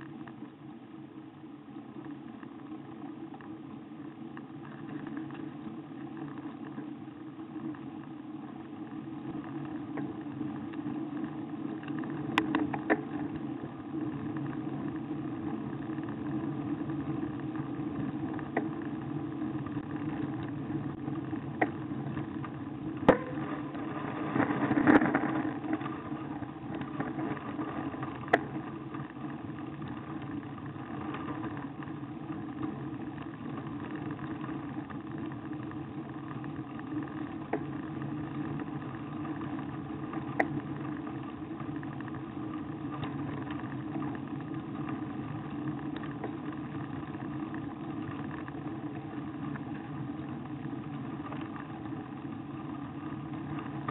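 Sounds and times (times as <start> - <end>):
wind and road noise: 9.4 - 36.6.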